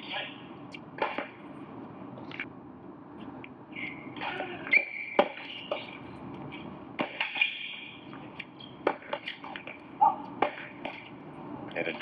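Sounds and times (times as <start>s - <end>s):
tennis ball struck by rackets: 1.0s - 1.4s, 4.2s - 6.0s, 7.0s - 11.1s
shoe squeak on court: 4.7s - 6.0s.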